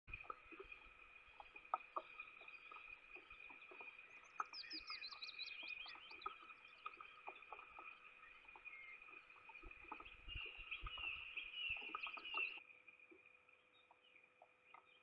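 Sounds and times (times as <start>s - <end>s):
light rain dripping: 0.1s - 15.0s
songbird trilling: 9.9s - 12.6s.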